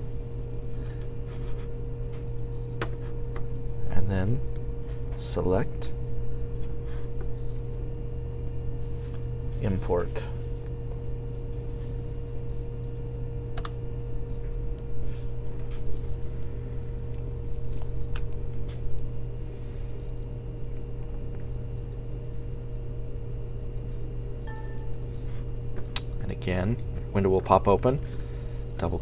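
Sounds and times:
low electrical hum: 0.0s - 29.0s
thin held tone: 24.4s - 25.2s.

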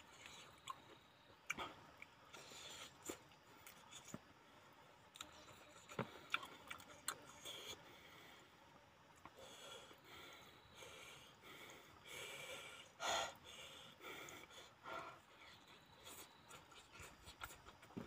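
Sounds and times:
person chewing: 0.1s - 4.2s, 5.1s - 7.8s, 16.0s - 18.0s.

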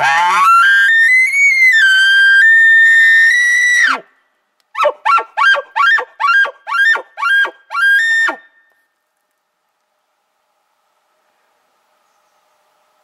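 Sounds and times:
elk call through bugle tube: 0.0s - 2.2s.

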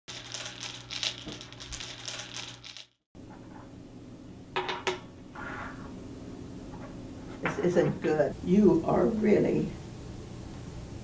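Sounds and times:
small hard objects clacking: 0.1s - 3.0s.

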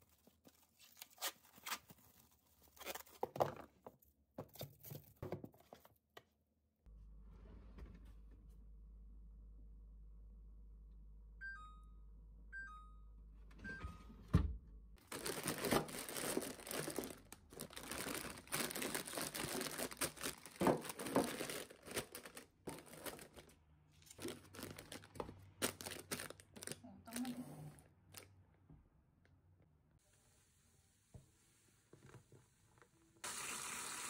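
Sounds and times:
two-note electronic beeps: 11.4s - 14.3s
plastic packets crinkling: 15.0s - 26.8s.

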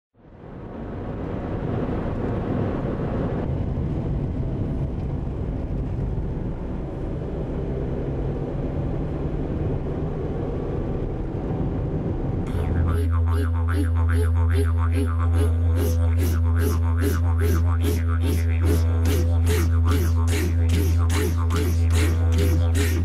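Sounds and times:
car engine and tyre rumble: 0.2s - 12.5s.

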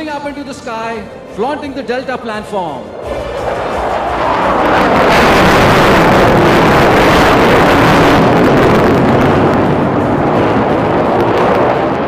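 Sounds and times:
jet engine roar: 2.4s - 12.0s.

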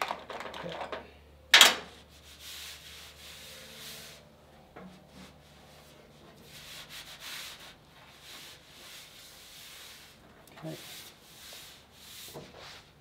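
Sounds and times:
hand rubbing on bare steel: 2.0s - 4.3s, 5.0s - 13.0s.

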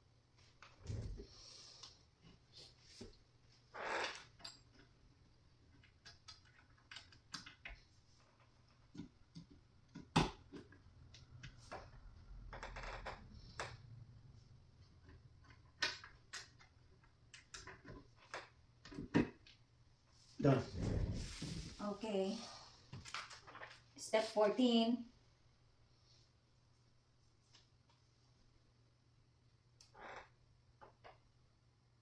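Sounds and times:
furniture parts clicking and knocking: 15.0s - 19.6s
soft rubbing: 20.2s - 22.6s.

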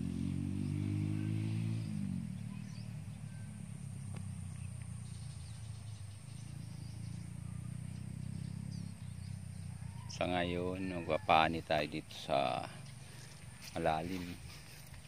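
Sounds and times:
small engine running: 0.0s - 10.0s, 12.2s - 15.0s
faint bird chirps: 0.6s - 11.3s.

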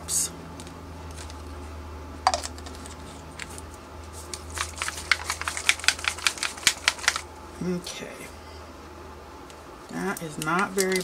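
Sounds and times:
small bottle clicking and rattling: 4.4s - 7.2s, 10.2s - 11.0s.

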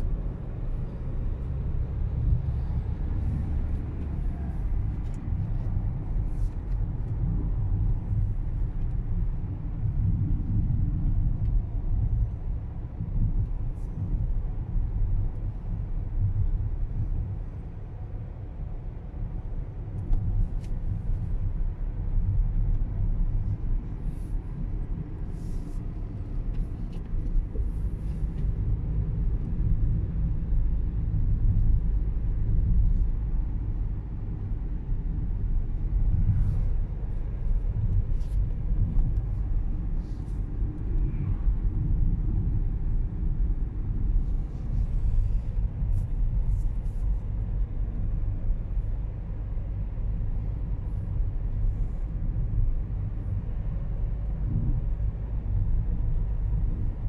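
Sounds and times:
car engine and tyre rumble: 0.0s - 57.0s.

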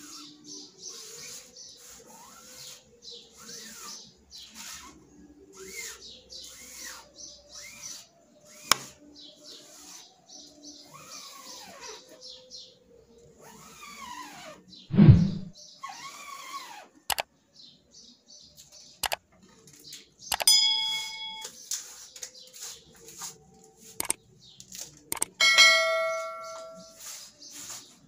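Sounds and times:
squeegee scraping through ink: 0.0s - 10.1s, 26.8s - 28.0s
sharp click: 20.3s - 20.5s, 24.0s - 24.2s, 25.1s - 25.4s.

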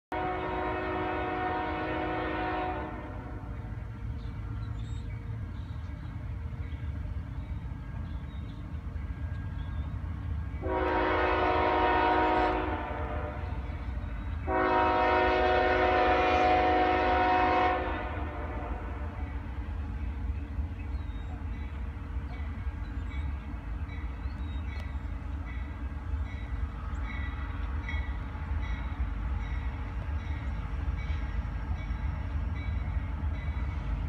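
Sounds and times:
locomotive air horn blasts: 0.1s - 3.6s, 10.6s - 13.7s, 14.4s - 19.4s.

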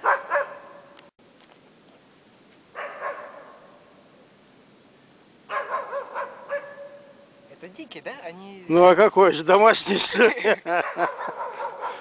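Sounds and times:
distant dog barking: 0.0s - 0.9s, 2.7s - 3.8s, 5.5s - 7.2s, 10.7s - 12.0s.

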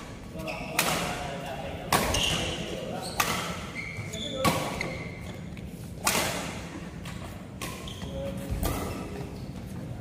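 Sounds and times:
racket hitting shuttlecock: 0.7s - 1.3s, 1.9s - 3.8s, 4.4s - 4.9s, 6.0s - 7.9s, 8.5s - 9.2s.

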